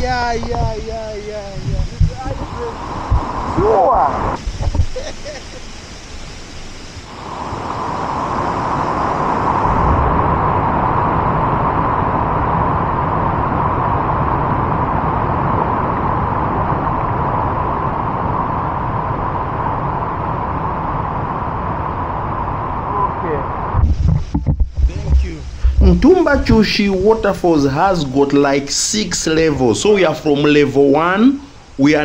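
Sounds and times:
waterfall rushing: 0:00.0 - 0:13.2.

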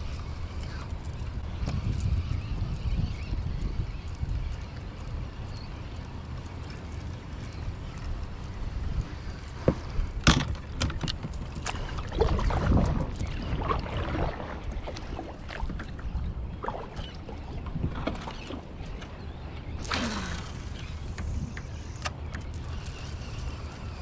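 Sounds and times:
water lapping and splashing: 0:05.9 - 0:24.0.

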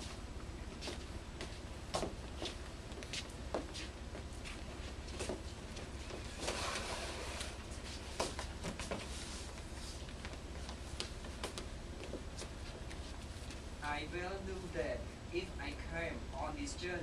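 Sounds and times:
footsteps shuffling on hard floor: 0:07.7 - 0:13.7.

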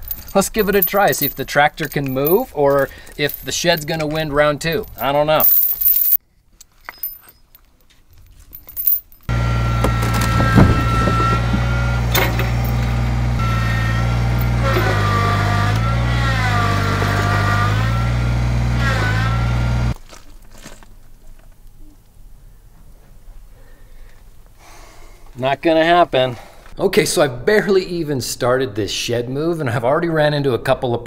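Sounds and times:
chain clinks: 0:00.0 - 0:07.7, 0:08.4 - 0:09.3
tractor engine straining: 0:09.3 - 0:20.0.

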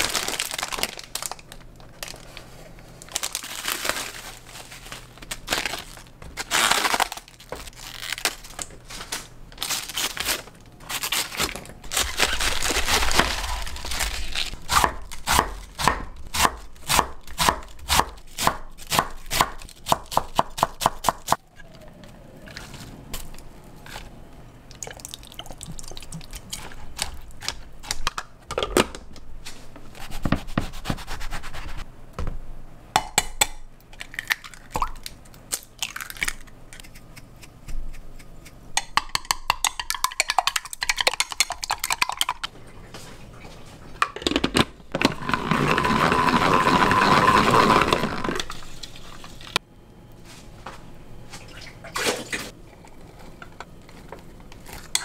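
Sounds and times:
eggs beaten in glass cup: 0:36.9 - 0:42.5.

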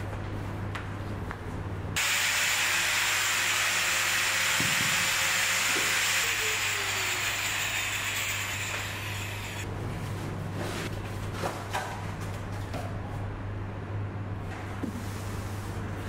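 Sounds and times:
power tool whining: 0:02.0 - 0:09.7.

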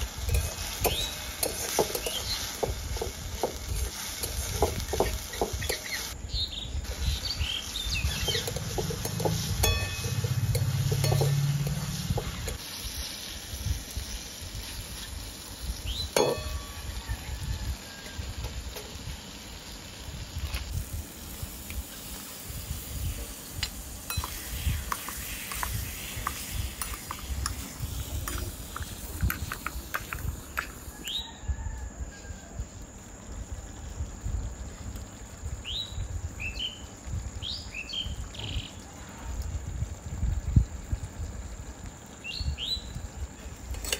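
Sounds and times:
light frying: 0:00.0 - 0:43.9
metal spatula scraping wok: 0:00.1 - 0:06.2, 0:08.1 - 0:13.3
clinks against pan: 0:08.3 - 0:11.7, 0:16.2 - 0:16.8, 0:24.1 - 0:24.4.

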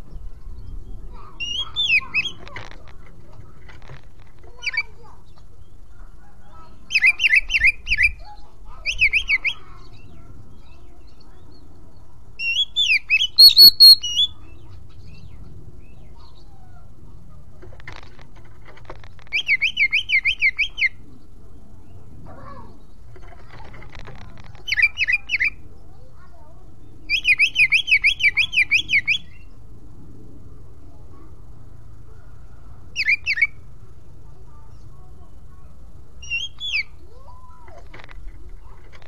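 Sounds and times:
bird singing whistled notes: 0:00.6 - 0:02.4, 0:06.9 - 0:11.2, 0:12.4 - 0:16.5, 0:19.3 - 0:21.0, 0:26.9 - 0:29.5, 0:33.0 - 0:33.6, 0:36.2 - 0:37.0.

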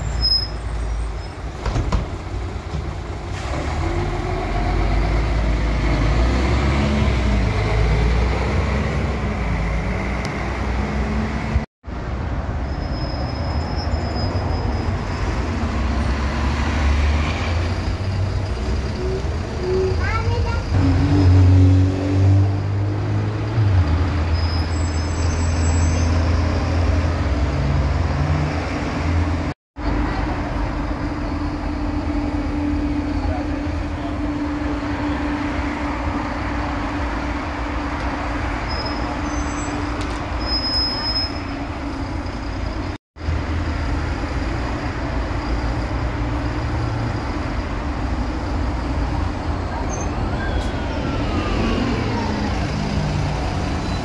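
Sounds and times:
bus diesel engine humming: 0:00.0 - 0:11.7, 0:14.7 - 0:21.4, 0:26.3 - 0:54.0
street traffic: 0:00.0 - 0:54.0.

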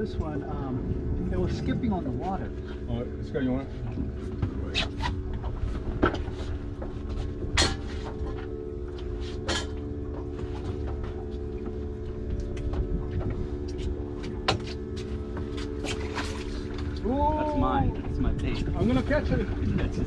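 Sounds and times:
boat engine humming: 0:00.0 - 0:20.0
wind and water rumble: 0:00.0 - 0:20.0
sharp knocks and clicks: 0:12.4 - 0:15.6.

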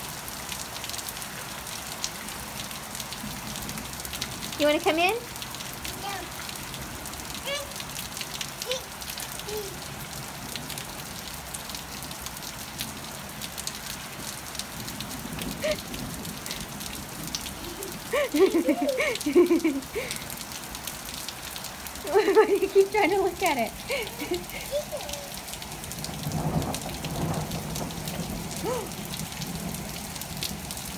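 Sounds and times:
light rain pattering: 0:00.0 - 0:30.9
toddler babbling: 0:05.8 - 0:06.5, 0:07.4 - 0:07.9, 0:08.6 - 0:10.0, 0:17.4 - 0:19.2, 0:23.9 - 0:25.6, 0:28.6 - 0:29.0.

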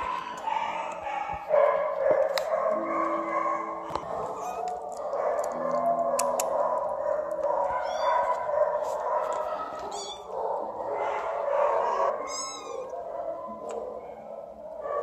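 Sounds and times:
kittens mewing: 0:07.7 - 0:08.5, 0:09.4 - 0:10.3, 0:11.8 - 0:12.9.

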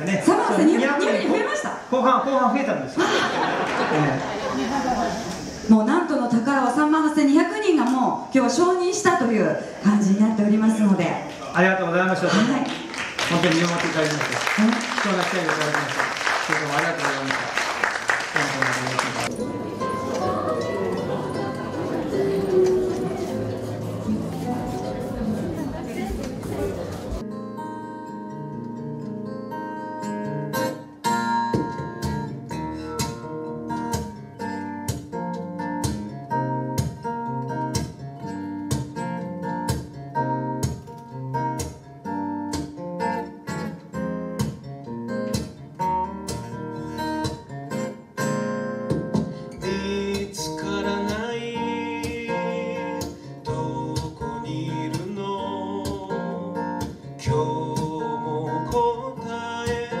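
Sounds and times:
acoustic guitar strumming: 0:18.5 - 1:00.0
man singing: 0:49.5 - 1:00.0.

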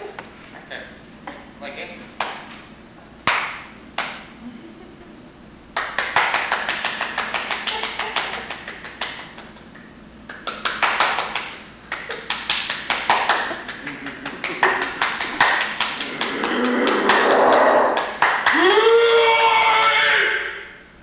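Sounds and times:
sharp hand slaps: 0:02.2 - 0:02.6, 0:03.2 - 0:04.3, 0:05.8 - 0:18.6.

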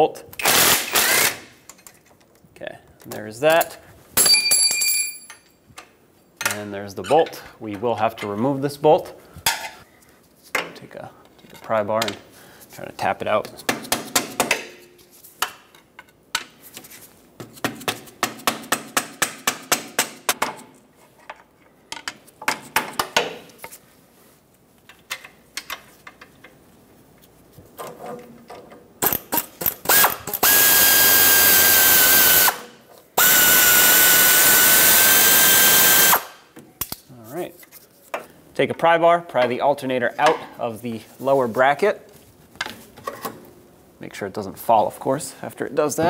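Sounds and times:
pneumatic air ratchet whining: 0:00.4 - 0:01.5, 0:29.0 - 0:32.6, 0:33.2 - 0:36.4.

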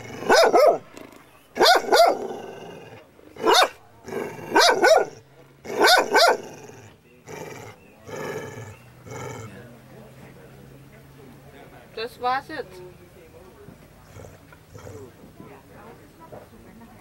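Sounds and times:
dog barking: 0:00.2 - 0:00.9, 0:01.6 - 0:02.3, 0:03.4 - 0:03.8, 0:04.5 - 0:06.5.

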